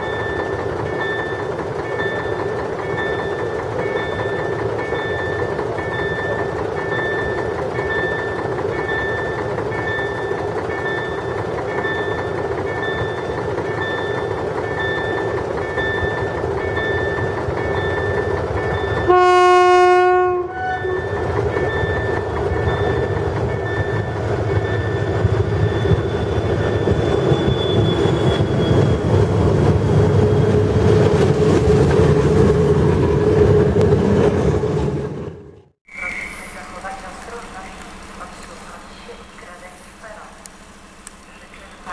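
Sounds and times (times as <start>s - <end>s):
level crossing signal beeping: 0.0s - 29.0s
diesel locomotive engine: 0.0s - 41.9s
train horn blast: 19.1s - 21.0s.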